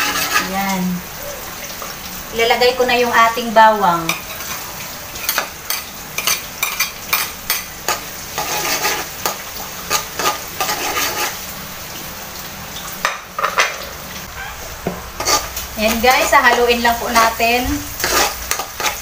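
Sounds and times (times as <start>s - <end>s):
metal ladle scraping pan: 0.0s - 0.7s, 5.2s - 11.5s, 15.1s - 19.0s
garlic sizzling in butter: 0.0s - 19.0s.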